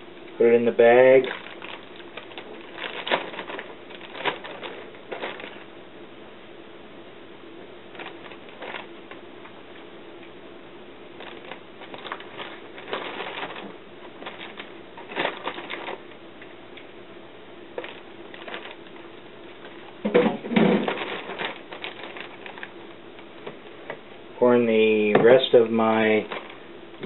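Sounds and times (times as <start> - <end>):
plastic bag crinkling: 0.5 - 5.7, 7.9 - 9.3, 11.1 - 16.2, 17.7 - 23.9, 24.9 - 27.0.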